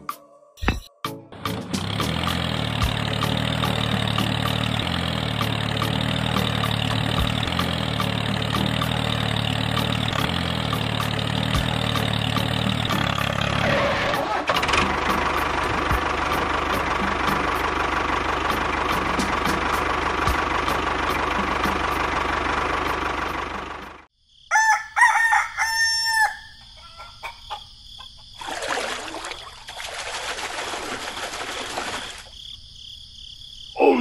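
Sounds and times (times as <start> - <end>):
tractor engine running: 0.6 - 24.1
rooster crowing: 24.4 - 27.7.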